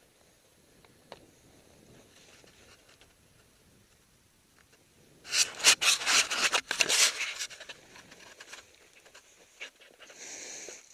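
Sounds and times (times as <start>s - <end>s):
clothing rubbing on microphone: 5.3s - 10.2s.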